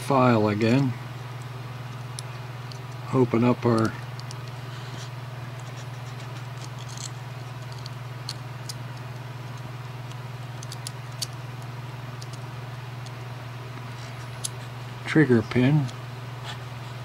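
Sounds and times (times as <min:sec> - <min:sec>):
low electrical hum: 0:00.0 - 0:17.0.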